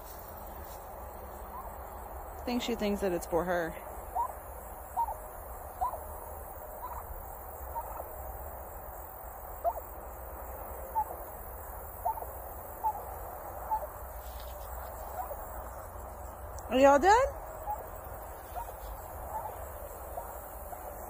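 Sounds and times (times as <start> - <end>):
turkey chirping: 1.3 - 1.8, 4.1 - 8.2, 9.6 - 10.0, 10.8 - 15.8, 17.5 - 21.0.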